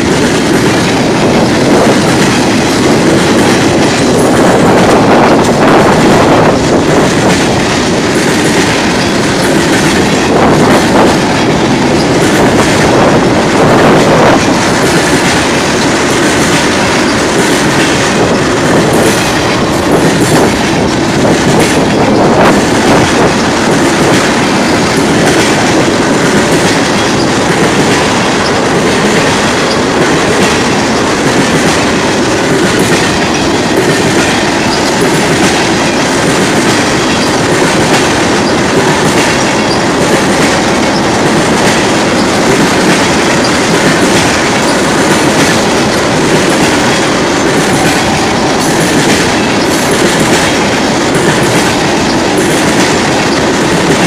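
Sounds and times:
freight train rolling past: 0.0 - 54.0
steel wheels clattering on rails: 0.0 - 54.0.

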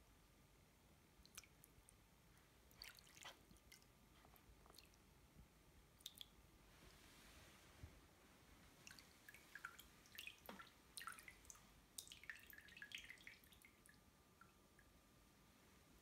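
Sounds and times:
water dripping into a basin: 1.2 - 2.0, 2.6 - 4.0, 4.6 - 5.1, 5.9 - 6.4, 8.8 - 15.0
water sloshing in a basin: 2.6 - 5.0, 8.8 - 14.6.

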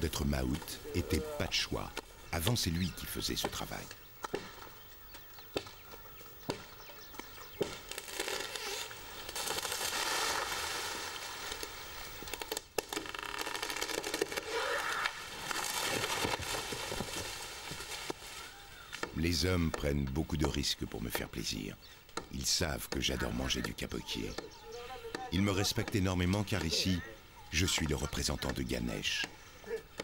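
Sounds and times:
chopping branches: 3.3 - 10.6, 11.4 - 20.7, 22.1 - 23.2
leaves rustling and twigs snapping: 4.2 - 19.2
branches crashing down: 7.4 - 19.2.

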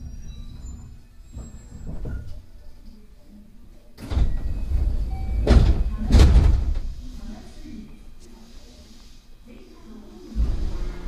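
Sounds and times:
heavy door thuds: 4.0 - 6.9.

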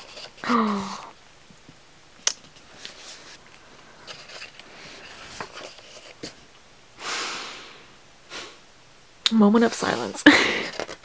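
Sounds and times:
photobook pages rustling: 0.0 - 0.8, 2.4 - 6.5.

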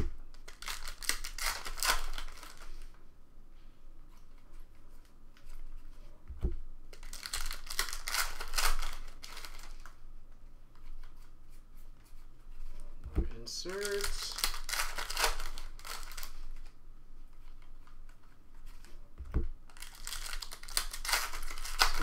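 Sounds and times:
cards flipping clicks: 13.6 - 16.3.

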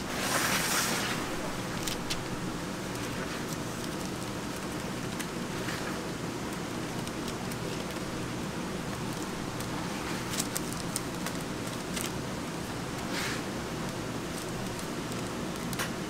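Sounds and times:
paper rustling: 0.0 - 8.1, 8.8 - 12.2
steady low hum: 0.0 - 16.0.

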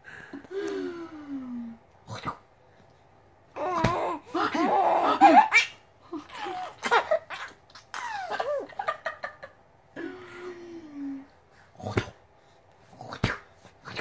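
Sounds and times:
baby laughing: 3.6 - 9.2.

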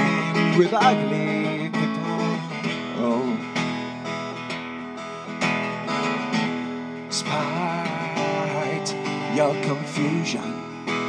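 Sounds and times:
person singing: 0.0 - 3.6, 7.1 - 11.0
acoustic guitar strumming: 0.0 - 11.0.

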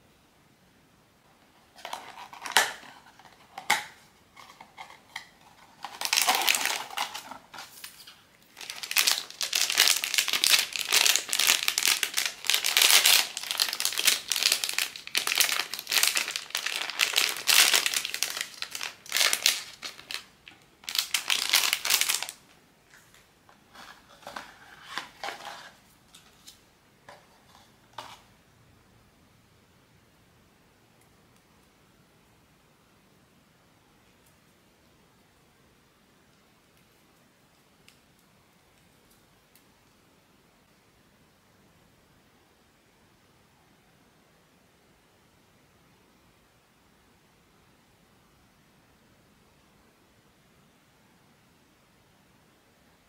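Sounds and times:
plastic packaging crinkling: 1.8 - 22.6, 23.7 - 26.6.

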